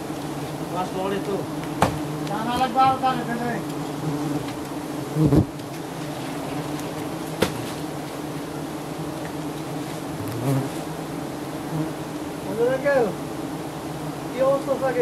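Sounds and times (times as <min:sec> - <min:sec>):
bee swarm buzzing: 0:00.0 - 0:15.0
dull knock: 0:01.8 - 0:02.0.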